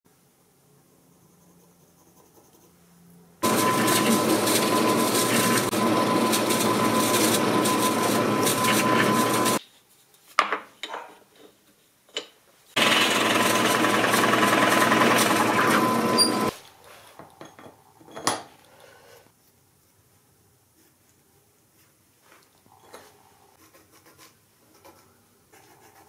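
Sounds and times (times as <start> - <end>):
drill press boring into wood: 3.4 - 9.6, 12.8 - 16.5.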